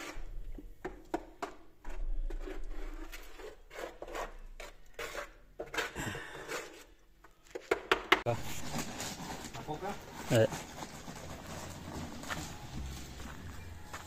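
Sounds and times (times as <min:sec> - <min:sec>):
scraping and rubbing: 0:01.8 - 0:07.7, 0:08.3 - 0:13.6.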